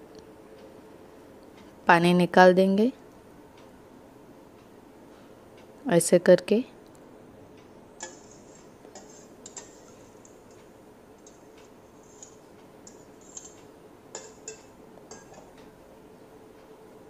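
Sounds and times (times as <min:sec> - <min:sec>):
faint steady hum: 0:00.0 - 0:17.0
metal spoon scraping steel bowl: 0:08.0 - 0:10.3, 0:12.0 - 0:15.5.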